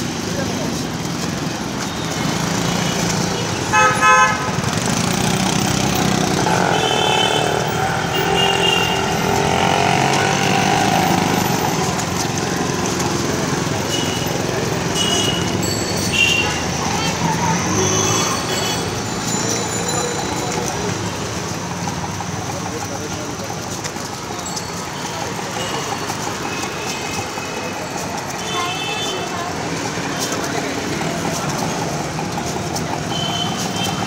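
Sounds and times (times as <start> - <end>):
road traffic noise: 0.0 - 34.0
vehicle horn honking: 3.7 - 4.8, 6.5 - 9.8.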